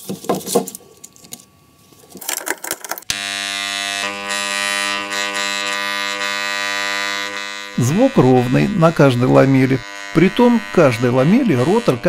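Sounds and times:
steady electrical buzz: 0:03.0 - 0:12.0.

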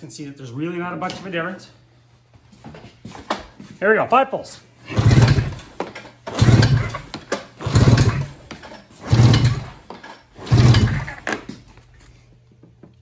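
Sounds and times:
pull-starter cranking engine: 0:04.9 - 0:11.5.

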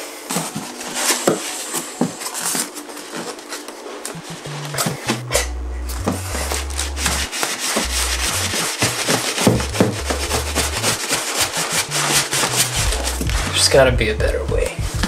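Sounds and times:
background music with bass line: 0:04.2 - 0:15.0
styrofoam scraping cardboard box: 0:06.3 - 0:13.8.

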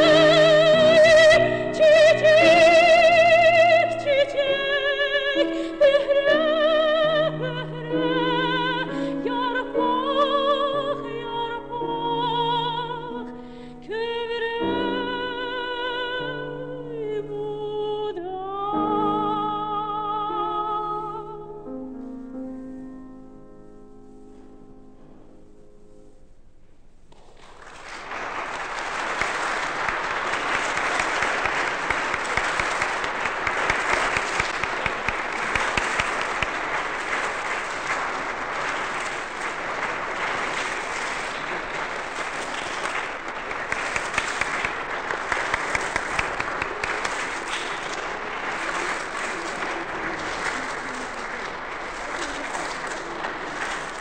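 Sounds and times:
audience applause: 0:00.0 - 0:06.6, 0:27.1 - 0:54.0.

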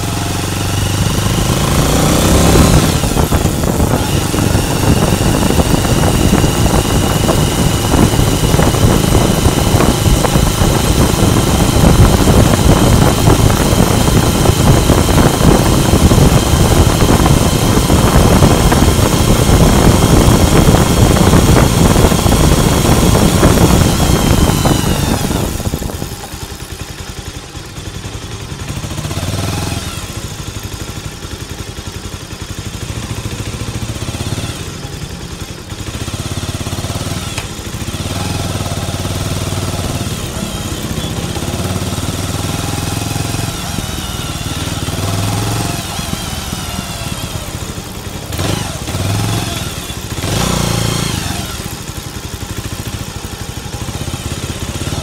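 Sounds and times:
motorcycle engine and exhaust: 0:00.0 - 0:55.0.

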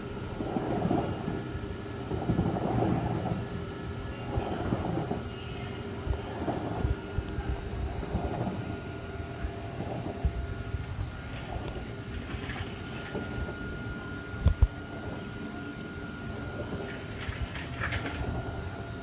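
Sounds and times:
faint steady hum: 0:00.0 - 0:19.0
water heater crackling: 0:04.3 - 0:19.0.

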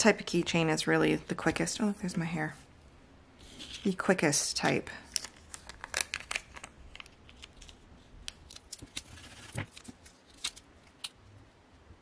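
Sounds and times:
tape peeling crackles: 0:05.1 - 0:11.2.

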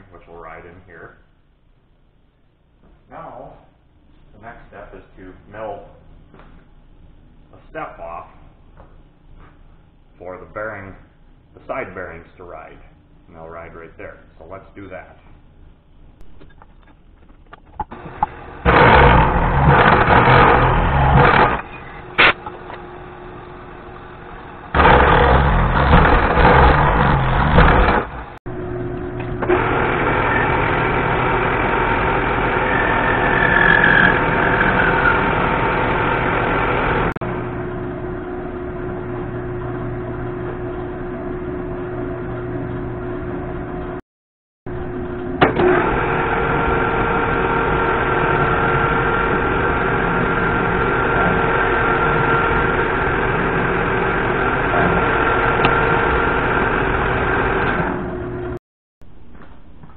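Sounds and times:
metal lathe running: 0:17.9 - 0:28.4, 0:29.0 - 0:43.6, 0:45.0 - 0:58.6
milling machine cutting metal: 0:17.9 - 0:28.4, 0:29.1 - 0:37.4, 0:44.9 - 0:58.6.

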